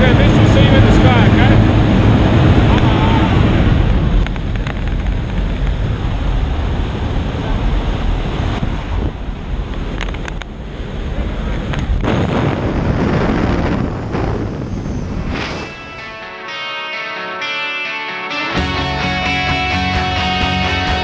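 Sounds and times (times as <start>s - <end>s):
wind buffeting microphone: 0.0s - 15.8s
aircraft engine noise: 0.0s - 16.4s.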